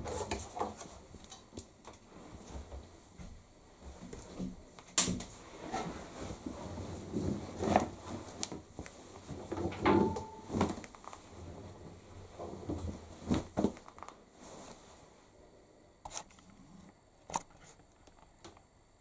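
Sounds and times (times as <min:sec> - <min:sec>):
fabric rustling: 0:05.3 - 0:15.3.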